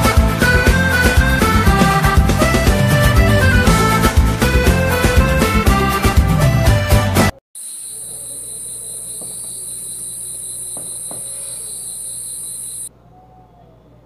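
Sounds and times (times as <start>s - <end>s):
high-pitched insect trill: 7.6s - 12.9s.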